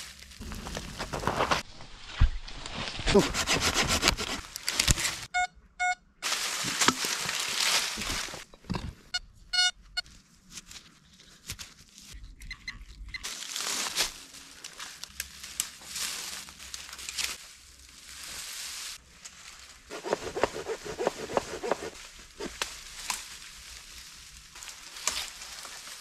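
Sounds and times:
rustling in dry brush: 0.0s - 5.3s, 6.2s - 8.5s, 13.3s - 26.0s
metal detector beeping: 5.3s - 6.1s, 9.1s - 9.8s.

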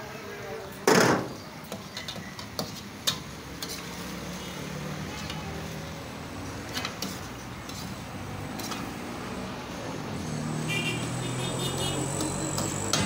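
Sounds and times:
low hum of traffic: 0.0s - 13.0s
curry simmering and sizzling: 1.8s - 10.4s.

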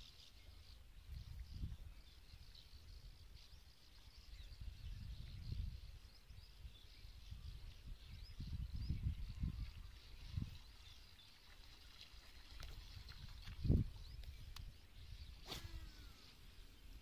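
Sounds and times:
faint bird chirps: 0.0s - 17.0s
wind buffeting microphone: 4.4s - 11.0s, 12.6s - 16.1s.

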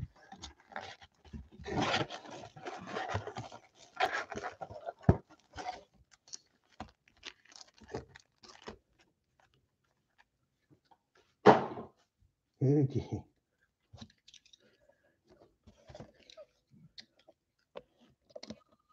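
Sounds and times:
card packs rustling and crinkling: 0.1s - 8.9s.

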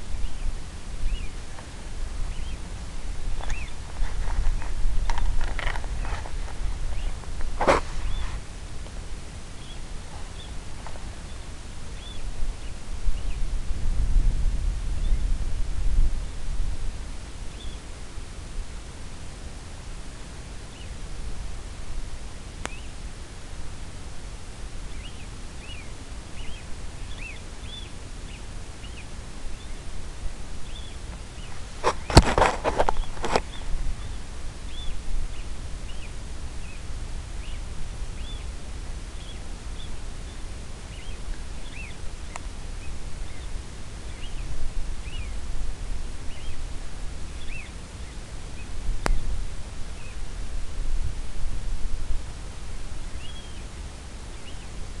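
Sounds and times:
low background rumble: 0.0s - 55.0s
brief loud clatter: 31.8s - 33.4s.

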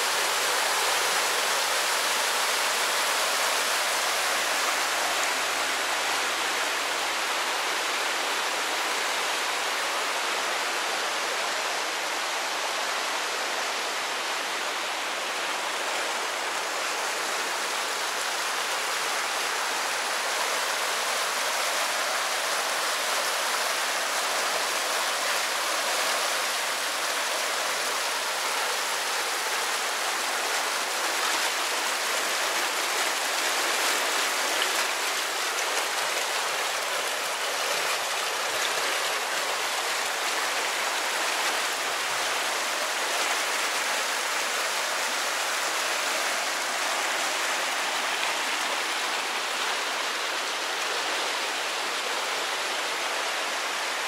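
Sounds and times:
water rushing through sluice gate: 0.0s - 54.0s.

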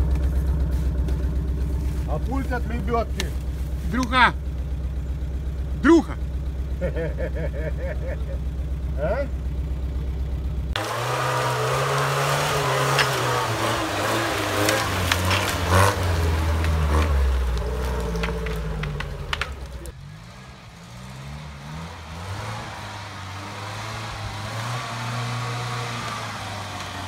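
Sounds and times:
off-road vehicle engine revving: 0.0s - 27.0s
branches snapping under tyres: 10.8s - 20.0s, 22.2s - 27.0s.

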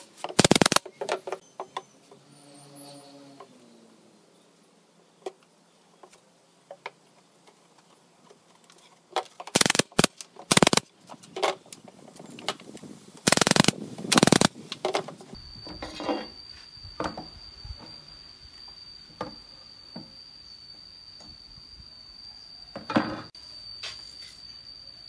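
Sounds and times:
thin high whine: 0.0s - 0.8s, 13.2s - 25.0s.

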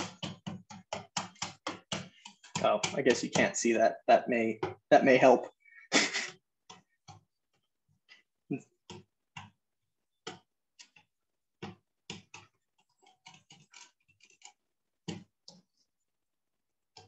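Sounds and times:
whisk tapping plastic container: 0.0s - 3.7s, 8.8s - 15.8s.

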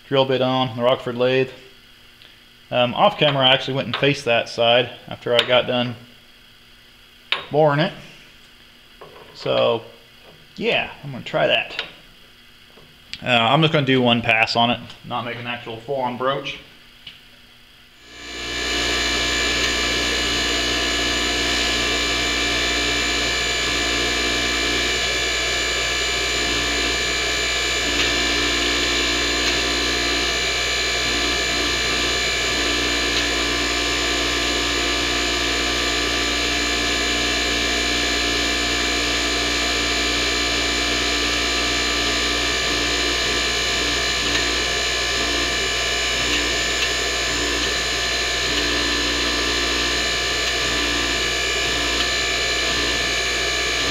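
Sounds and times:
hydraulic pump whining: 18.0s - 53.9s.

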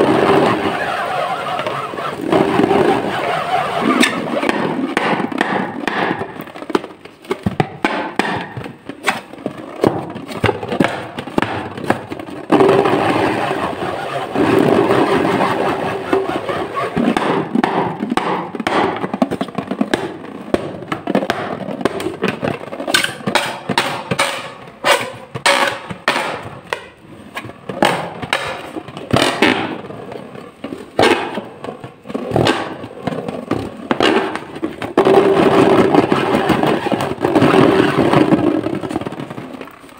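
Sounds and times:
fingers squeaking on rubber balloon: 0.0s - 5.0s, 12.9s - 17.4s.

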